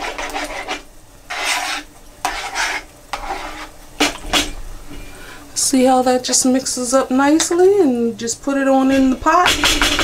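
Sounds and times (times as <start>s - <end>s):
metal spoon stirring in bowl: 0.0s - 4.6s.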